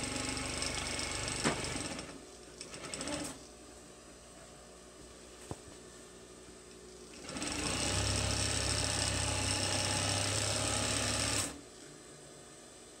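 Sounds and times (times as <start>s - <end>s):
sewing machine stitching: 0.0s - 3.4s, 7.2s - 11.6s.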